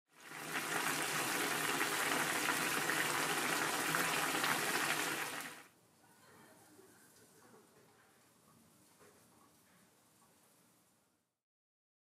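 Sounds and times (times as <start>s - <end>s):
broth boiling and bubbling: 0.1s - 5.7s.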